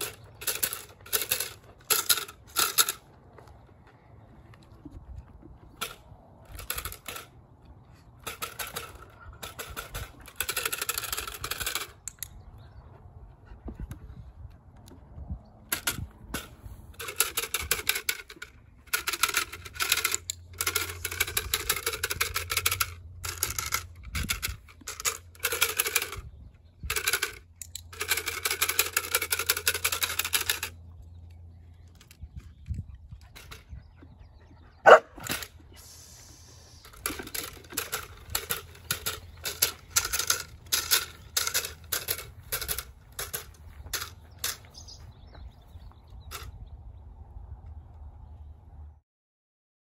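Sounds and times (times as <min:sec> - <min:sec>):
clatter stick rattling: 0:00.0 - 0:03.0, 0:08.2 - 0:12.0, 0:15.7 - 0:26.2, 0:26.9 - 0:30.8, 0:36.7 - 0:44.8.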